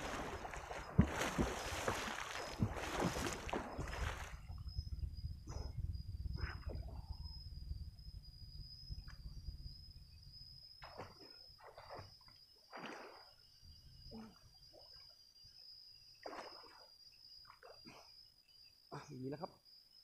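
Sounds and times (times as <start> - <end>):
water splashing from swimming: 0.0 - 4.5, 10.8 - 13.4
steady high-pitched whine: 0.0 - 12.0.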